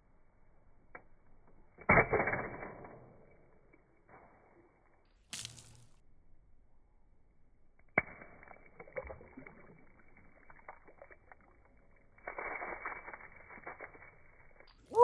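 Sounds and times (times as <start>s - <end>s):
water splashing and dripping: 3.7s - 5.9s, 8.0s - 15.0s.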